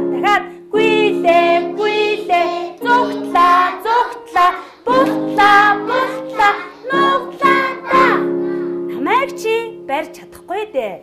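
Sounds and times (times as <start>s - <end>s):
children and woman singing: 0.0s - 9.8s
electronic keyboard chords: 4.9s - 10.2s.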